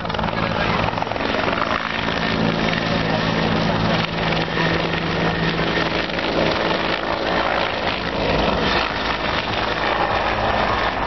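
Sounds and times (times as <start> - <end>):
constant rushing noise: 0.0 - 11.0
helicopter rotor and turbine: 0.0 - 11.0.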